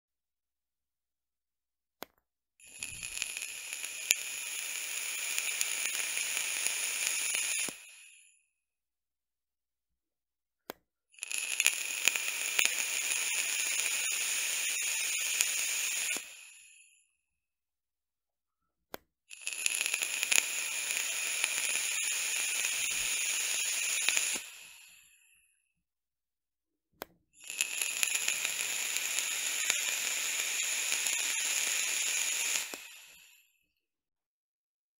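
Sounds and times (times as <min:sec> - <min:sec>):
vape coil sizzling and popping: 0:02.6 - 0:08.3, 0:11.2 - 0:17.0, 0:19.3 - 0:25.4, 0:27.4 - 0:33.5.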